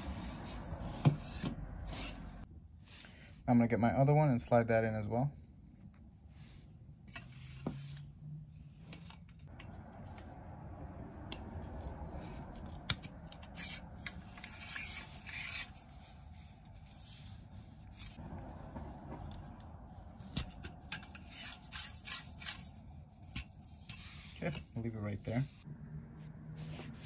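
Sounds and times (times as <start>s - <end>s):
plastic ring scraping on flagpole: 12.6s - 18.2s, 20.2s - 25.4s.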